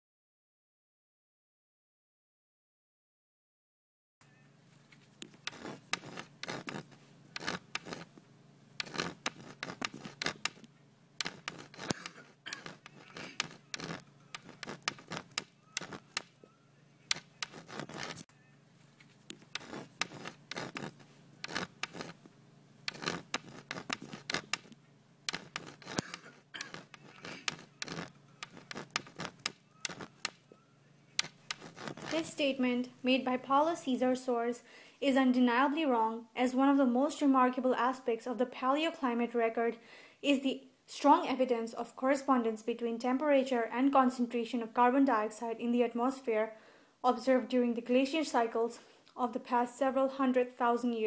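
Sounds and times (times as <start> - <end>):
chalk scratching on blackboard: 5.1 - 8.1, 8.8 - 16.4, 17.1 - 18.3, 19.0 - 22.2, 22.9 - 30.5, 31.2 - 32.4.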